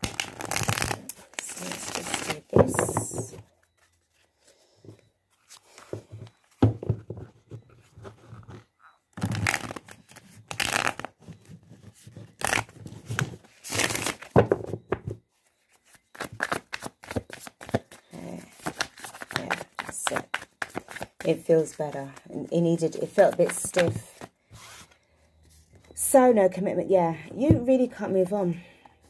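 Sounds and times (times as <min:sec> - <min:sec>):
cards being shuffled: 0:00.0 - 0:03.4, 0:09.2 - 0:11.4, 0:12.1 - 0:14.4, 0:15.8 - 0:22.3, 0:22.9 - 0:24.8.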